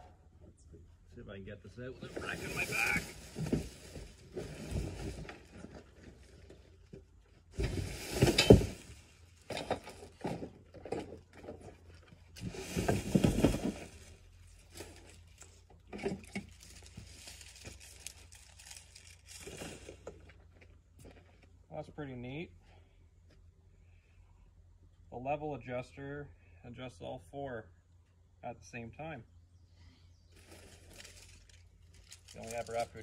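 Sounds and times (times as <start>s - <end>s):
handling knocks and rattles: 3.2s - 21.5s
plastic wrapping crinkling: 16.5s - 20.0s, 30.4s - 33.0s.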